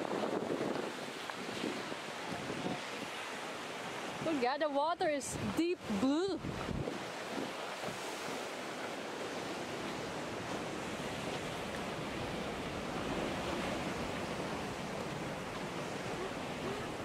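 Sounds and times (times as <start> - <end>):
wind on microphone: 0.0 - 4.5, 5.3 - 8.8
ocean surf rushing: 0.0 - 17.0.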